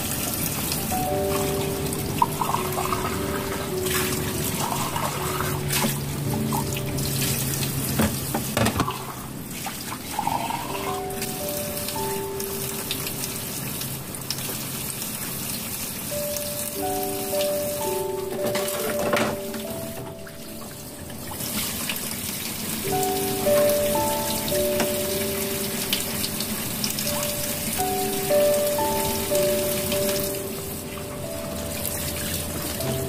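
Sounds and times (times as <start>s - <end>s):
soft background music: 0.0s - 33.0s
tap water running into sink: 0.0s - 33.0s.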